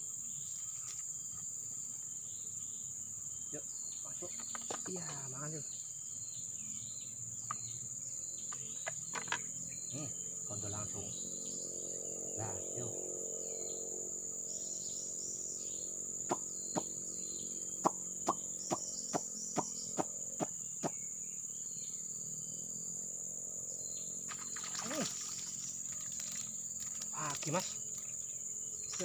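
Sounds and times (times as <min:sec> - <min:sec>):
insects droning: 0:00.0 - 0:29.0
fish splashing: 0:24.3 - 0:28.0.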